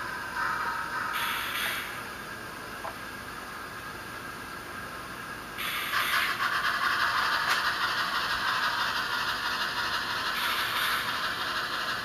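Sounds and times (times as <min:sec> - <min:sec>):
steam hiss from small speaker: 0:10.4 - 0:11.3.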